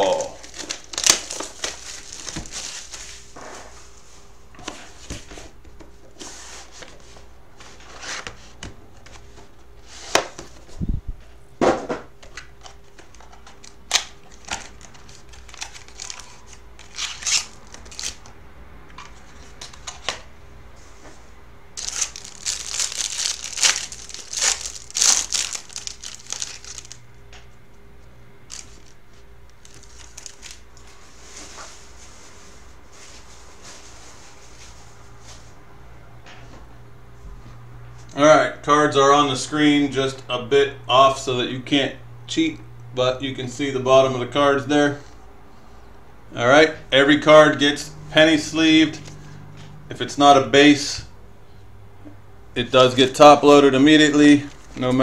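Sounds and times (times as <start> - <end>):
plastic wrappers crinkling and tearing: 0.0 - 3.3, 12.6 - 18.3, 21.8 - 27.1, 28.5 - 30.9, 53.8 - 55.0.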